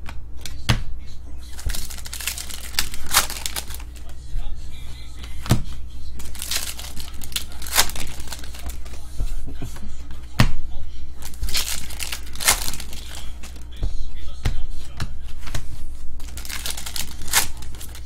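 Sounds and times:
foil wrapper tearing and crinkling: 1.6 - 4.0, 6.2 - 9.0, 11.2 - 13.7, 16.2 - 18.0.

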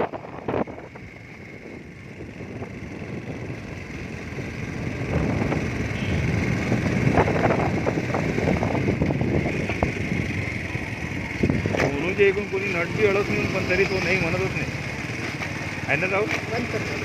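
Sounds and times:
wind buffeting microphone: 0.0 - 12.1
motorcycle engine running: 0.0 - 17.0.

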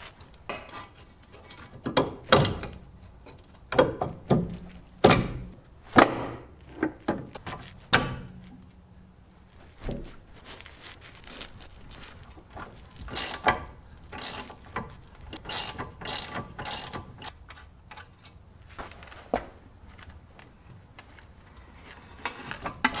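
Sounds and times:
hand tools knocking and clunking: 0.4 - 8.5.

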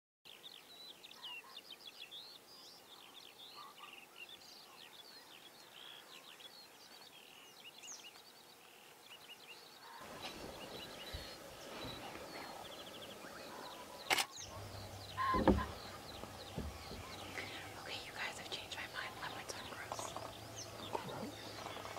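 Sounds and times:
small birds chirping: 0.3 - 21.9
even hiss: 10.0 - 21.9
sharp click: 14.1 - 14.4.

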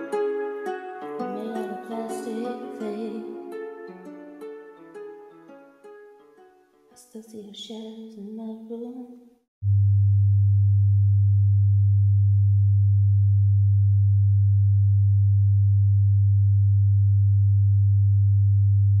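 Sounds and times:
person singing: 0.0 - 4.4.

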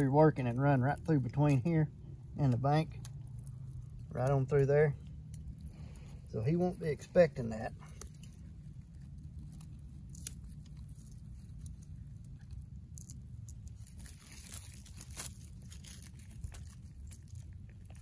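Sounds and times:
crunches: 0.0 - 18.0
low rumble: 0.0 - 18.0
dry brush crackling and rustling: 5.7 - 18.0.

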